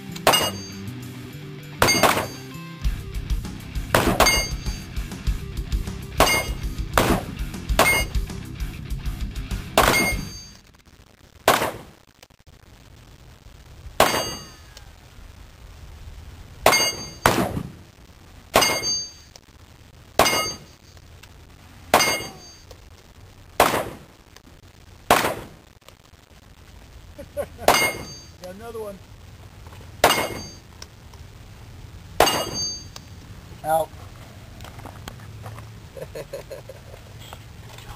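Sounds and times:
handgun shots: 1.8 - 2.4.

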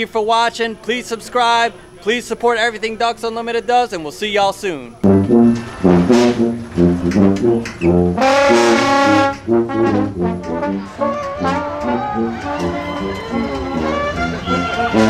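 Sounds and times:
brass band playing: 5.0 - 15.0
long held brass note: 5.0 - 15.0
sousaphone bass line: 5.0 - 15.0.

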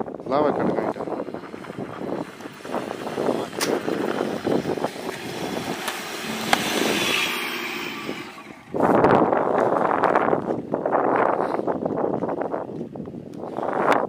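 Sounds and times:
car engine and tyres on sand: 0.0 - 14.0
wheels spinning throwing sand: 0.6 - 10.9.

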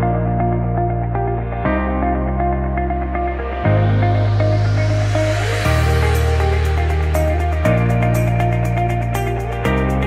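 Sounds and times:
rising synth swell: 3.2 - 8.9.

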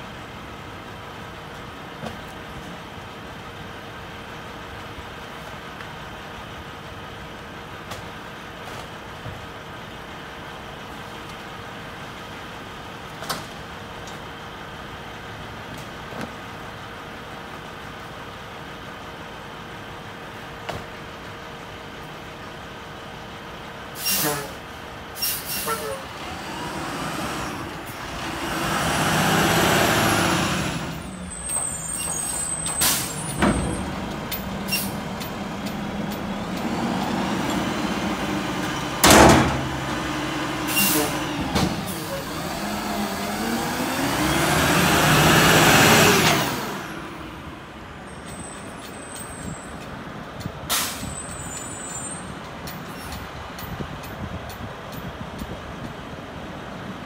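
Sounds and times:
diesel engine revving: 23.6 - 48.1
air brake hisses: 24.0 - 24.6, 25.2 - 26.1, 40.7 - 41.3, 50.7 - 52.2
loud metal bang: 38.6 - 40.0.

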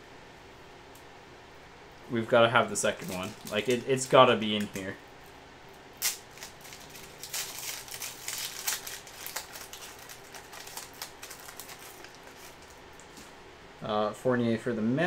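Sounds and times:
wrapper tearing and crinkling: 3.0 - 4.0, 6.0 - 12.8.

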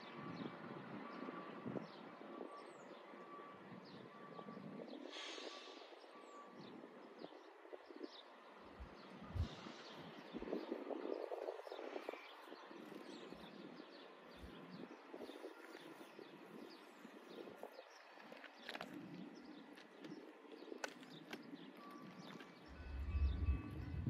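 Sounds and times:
faint beep: 2.3 - 4.6, 21.8 - 24.0
brief hiss: 5.1 - 6.0.

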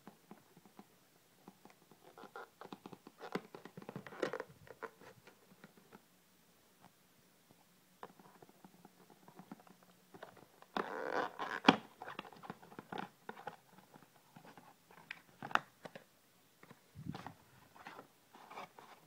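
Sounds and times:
cardboard scraping rustle: 17.0 - 19.0.

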